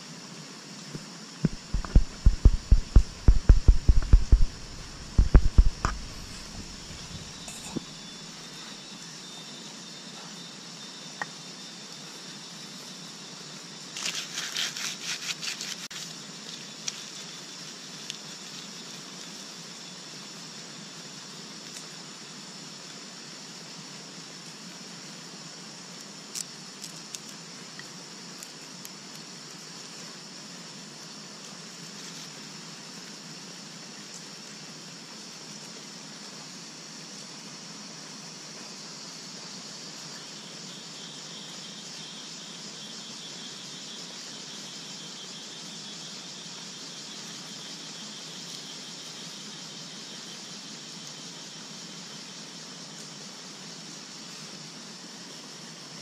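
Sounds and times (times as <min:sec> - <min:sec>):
steady hiss: 0:00.0 - 0:56.0
sharp clicks: 0:01.4 - 0:06.8
dry leaves rustling: 0:01.5 - 0:07.4, 0:13.9 - 0:19.3.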